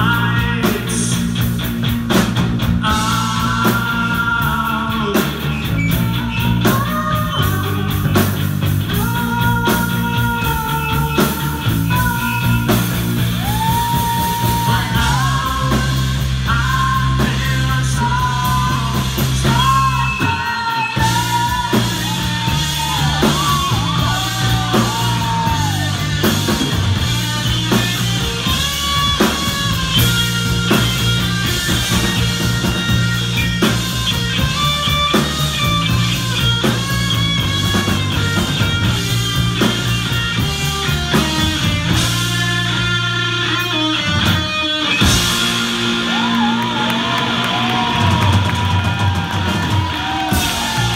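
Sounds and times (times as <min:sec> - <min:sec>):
person singing: 0:00.0 - 0:01.4, 0:02.8 - 0:30.0
drum kit: 0:00.0 - 0:50.9
electric bass: 0:00.0 - 0:50.9
electric guitar: 0:00.0 - 0:50.9.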